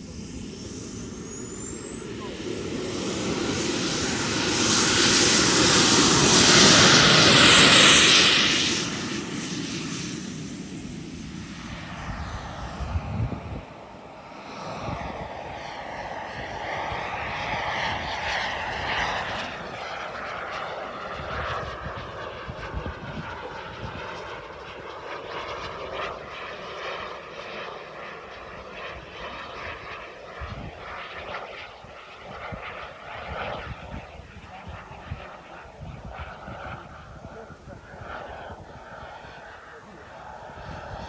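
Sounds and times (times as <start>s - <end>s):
jet turbine whine flying past: 0.0s - 41.0s.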